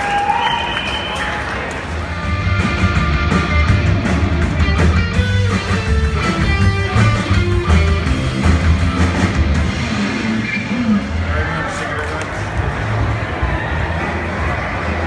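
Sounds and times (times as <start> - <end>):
electric guitar: 2.0 - 11.2
drum kit beat: 2.3 - 10.4.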